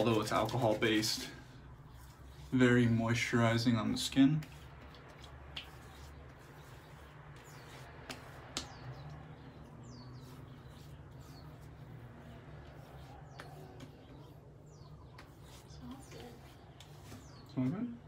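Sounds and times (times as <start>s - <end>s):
small birds chirping: 3.8s - 18.0s
hands slapping face: 4.4s - 6.1s, 7.9s - 9.2s.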